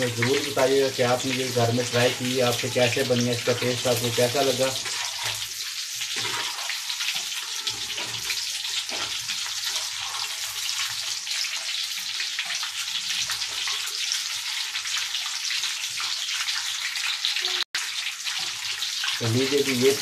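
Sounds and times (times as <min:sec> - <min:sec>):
hot oil sizzling in a wok: 0:00.0 - 0:20.0.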